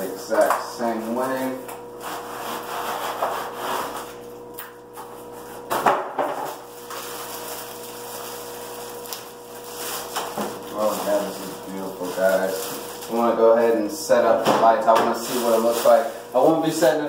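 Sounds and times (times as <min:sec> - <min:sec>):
sharp scrape: 0:02.0 - 0:04.1
plastic wrap crinkling: 0:06.5 - 0:13.4, 0:15.1 - 0:16.9
cardboard rubbing and rustling: 0:09.6 - 0:13.2, 0:15.2 - 0:16.1.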